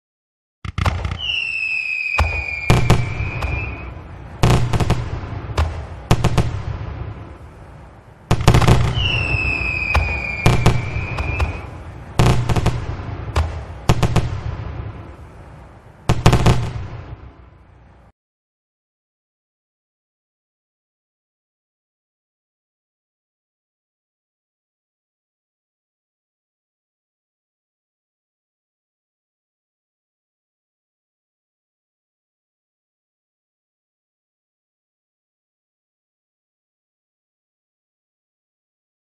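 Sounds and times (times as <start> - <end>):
firework bangs with crackle: 0.6 - 7.4, 8.3 - 15.3, 16.1 - 17.2
whistling firework: 0.7 - 6.9, 8.3 - 14.6, 16.1 - 17.2.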